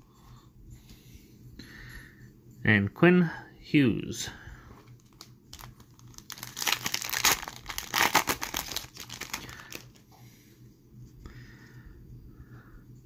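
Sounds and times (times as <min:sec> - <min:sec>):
foil wrapper crinkling and tearing: 0:05.0 - 0:10.0.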